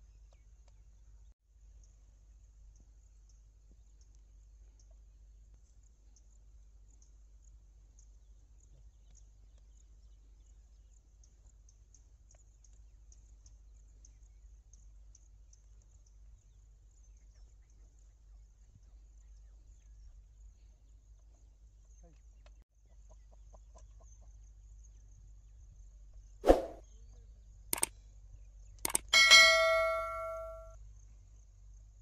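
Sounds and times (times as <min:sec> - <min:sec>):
faint high chirps: 0:28.9 - 0:30.8.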